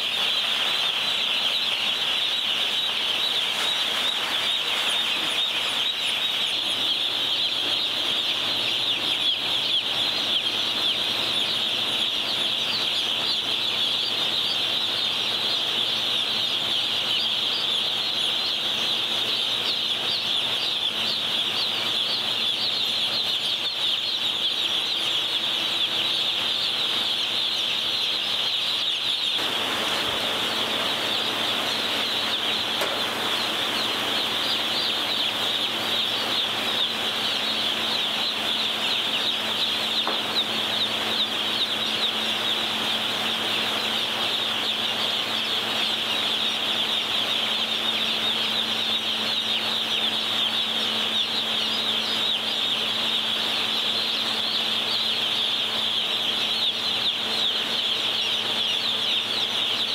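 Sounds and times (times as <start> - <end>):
chicks peeping: 0.0 - 59.9.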